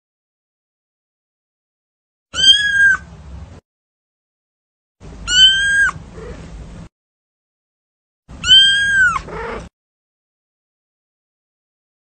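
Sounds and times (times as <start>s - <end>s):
kitten meowing: 2.4s - 3.1s, 5.2s - 6.5s, 8.4s - 9.7s.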